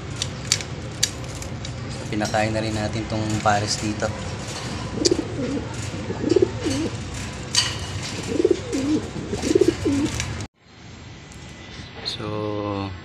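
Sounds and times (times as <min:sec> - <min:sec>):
pigeons cooing: 0:04.4 - 0:10.5.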